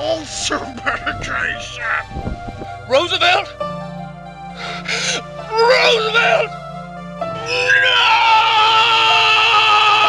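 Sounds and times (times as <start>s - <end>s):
low background music: 0.0s - 10.0s
man crying out: 4.9s - 6.6s, 7.3s - 10.0s.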